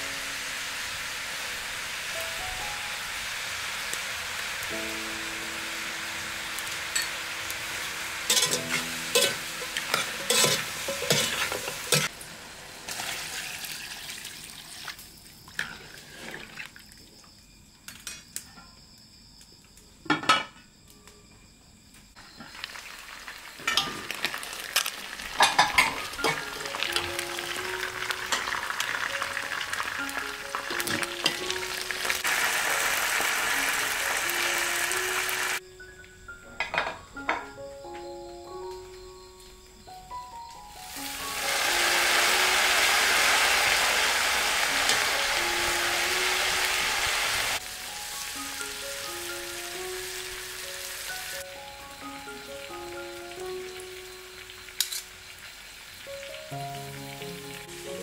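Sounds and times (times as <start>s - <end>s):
chicken sizzling in a pot: 0.0s - 16.4s, 22.2s - 35.6s, 40.7s - 58.0s
metal spoon clinking on pot: 8.3s - 12.1s, 54.8s - 55.0s.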